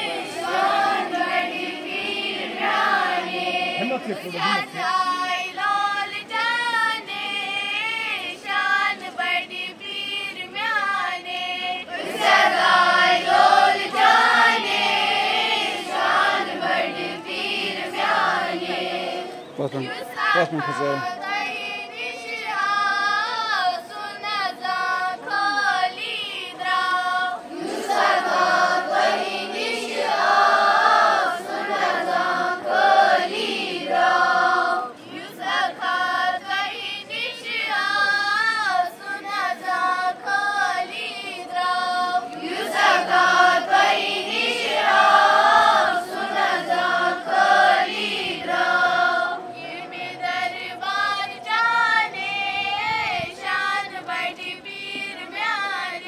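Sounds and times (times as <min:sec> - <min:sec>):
children singing in unison: 0:00.0 - 0:56.0.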